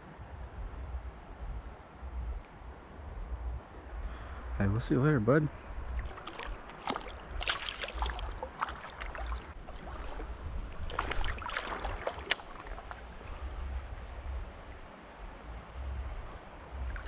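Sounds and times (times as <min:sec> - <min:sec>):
low rumble: 0:00.0 - 0:04.7, 0:10.2 - 0:17.0
creek water splashing: 0:05.5 - 0:17.0.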